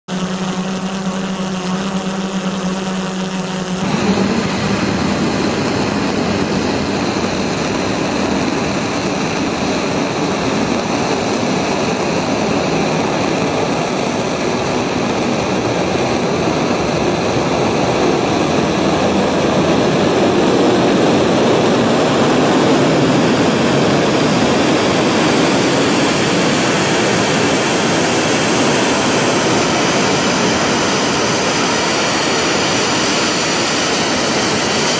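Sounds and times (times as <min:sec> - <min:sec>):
drone propellers humming: 0:00.0 - 0:34.9
rocket engine roaring: 0:00.1 - 0:34.9.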